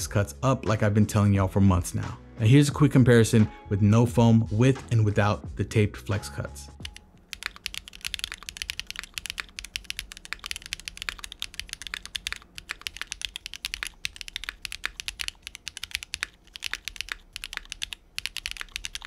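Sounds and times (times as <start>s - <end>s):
fast mechanical keyboard typing: 6.8s - 19.0s.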